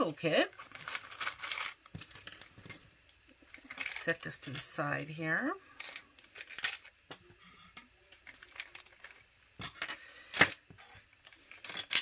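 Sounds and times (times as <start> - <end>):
plastic bags crinkling: 0.3 - 2.8, 3.4 - 4.6, 5.8 - 7.0, 8.2 - 9.3
plastic pieces clicking: 11.5 - 12.0.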